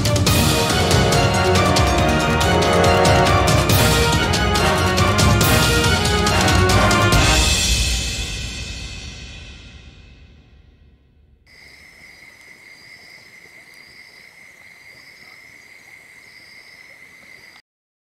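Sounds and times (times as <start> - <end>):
music: 0.0 - 11.4
insect pulsing higher call: 11.5 - 17.6
insect steady high trill: 11.5 - 17.6.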